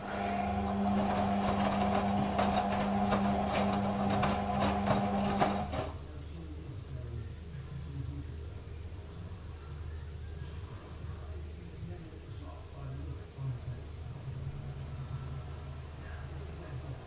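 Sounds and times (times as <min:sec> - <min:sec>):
washing machine motor hum: 0:00.0 - 0:06.2
laundry knocking in drum: 0:00.5 - 0:06.0.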